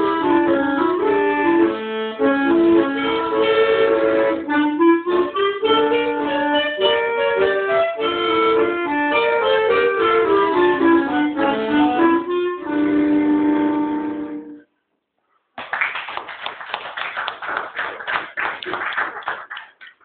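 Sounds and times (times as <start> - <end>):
accordion and clarinet duet: 0.0 - 14.7
applause: 15.6 - 20.0.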